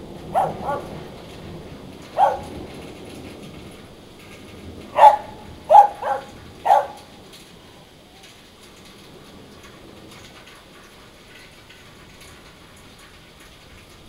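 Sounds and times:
dog barking: 0.2s - 1.1s, 2.1s - 2.7s, 4.9s - 7.1s.

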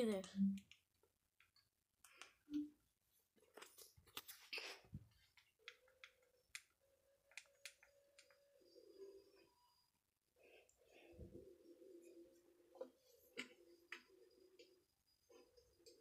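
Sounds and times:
faint steady tone: 5.1s - 16.0s.

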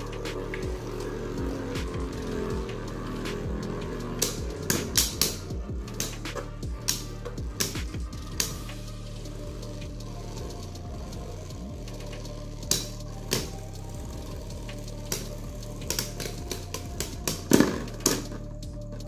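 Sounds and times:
spinning tops whirring: 0.0s - 19.0s.

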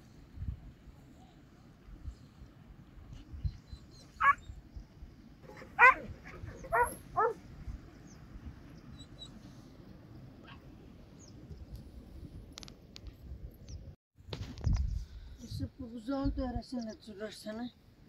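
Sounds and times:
dog yelping: 3.8s - 4.5s, 5.5s - 7.4s.

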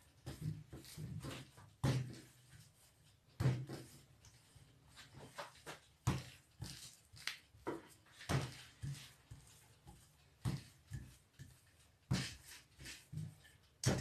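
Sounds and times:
rolling pin knocking on dough: 0.2s - 2.4s, 3.4s - 4.0s, 5.5s - 6.9s, 7.6s - 14.0s.

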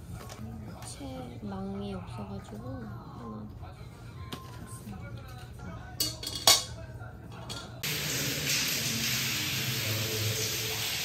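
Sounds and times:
water hissing from burst pipe: 7.8s - 11.0s.

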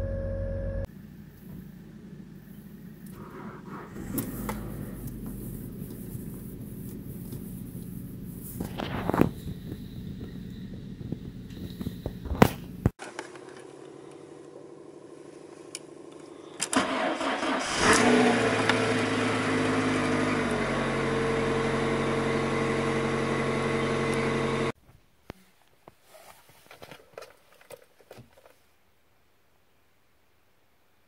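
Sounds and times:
car engine idling: 0.9s - 12.9s, 14.2s - 24.8s.

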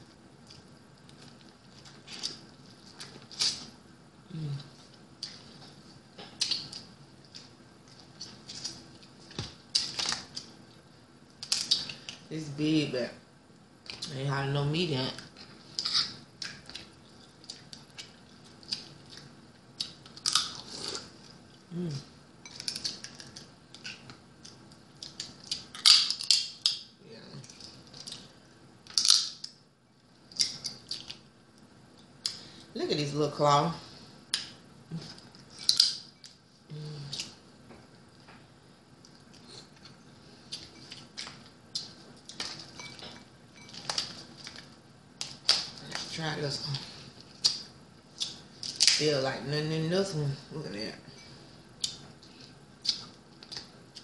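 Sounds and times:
crab shells cracking and crunching: 11.4s - 12.2s, 19.8s - 21.0s, 22.5s - 26.9s, 27.5s - 29.6s, 30.3s - 31.2s, 35.5s - 36.1s, 43.7s - 46.0s, 47.3s - 49.0s
crab shell cracking: 19.8s - 20.7s, 22.6s - 26.9s, 28.8s - 29.6s, 35.6s - 36.1s.

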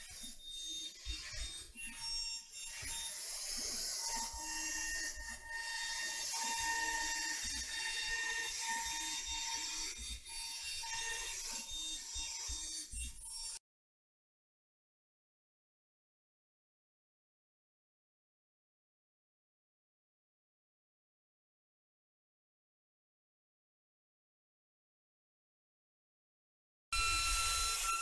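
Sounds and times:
router spindle hiss and whine: 2.0s - 12.9s, 27.0s - 28.0s.

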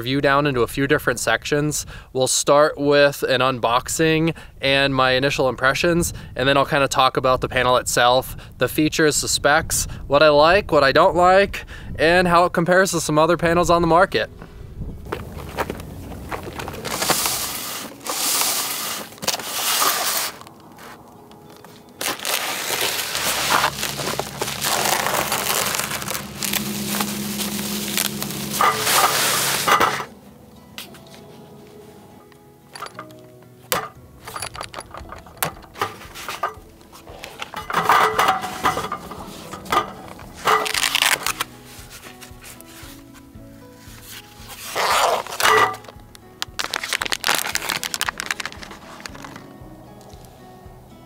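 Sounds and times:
soft background music: 0.0s - 51.0s
cardboard box being handled: 15.1s - 21.0s, 22.0s - 30.0s, 46.6s - 49.4s
scraping and rubbing: 15.1s - 21.0s, 22.0s - 30.2s, 33.8s - 43.2s, 43.8s - 45.9s
plastic packaging crinkling: 15.1s - 30.1s, 37.1s - 42.9s, 44.5s - 49.5s.

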